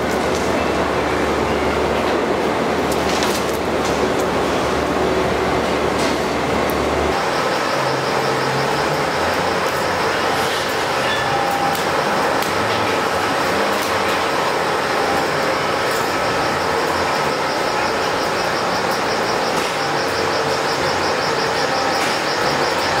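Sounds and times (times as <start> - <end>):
factory machinery running: 0.0 - 23.0
faint whining tones: 7.0 - 23.0.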